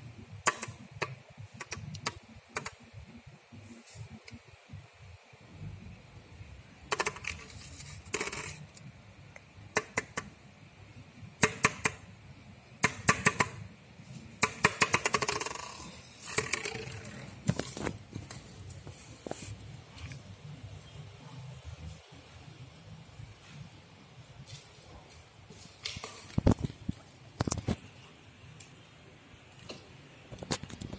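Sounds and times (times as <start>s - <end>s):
plastic bottle rolling on tiles: 6.9s - 8.8s, 14.8s - 18.5s.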